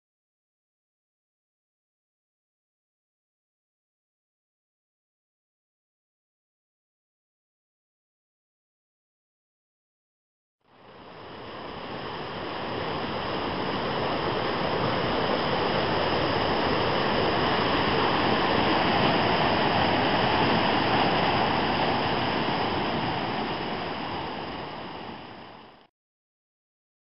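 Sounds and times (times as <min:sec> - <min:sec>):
rushing whitewater: 0:10.7 - 0:25.9.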